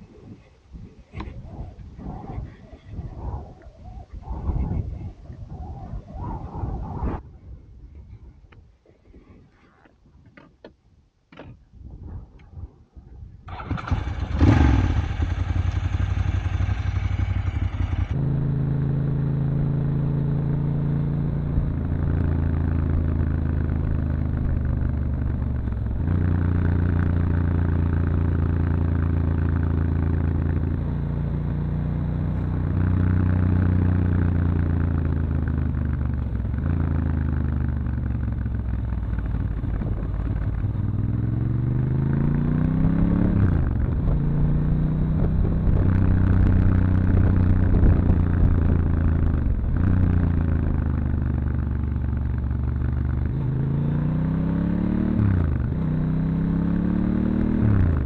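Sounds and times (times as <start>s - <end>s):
motorcycle engine revving: 13.5s - 58.0s.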